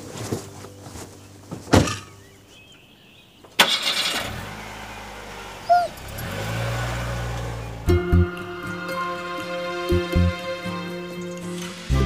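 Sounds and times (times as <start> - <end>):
bird chirping: 1.1 - 3.6, 7.3 - 8.5, 11.1 - 11.7
car engine starting and running: 3.6 - 11.9.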